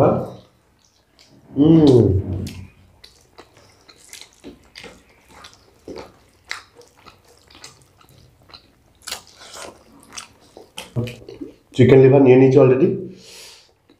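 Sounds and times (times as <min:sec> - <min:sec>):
mouths chewing: 0:00.4 - 0:11.8.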